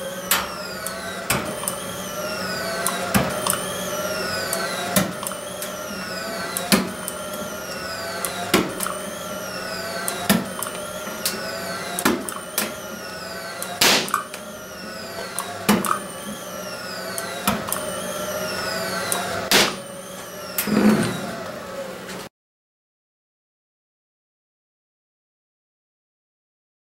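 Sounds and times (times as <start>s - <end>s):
spot welder snapping: 0.3s - 1.8s, 2.7s - 3.8s, 6.4s - 9.1s, 9.8s - 14.5s, 19.0s - 20.8s.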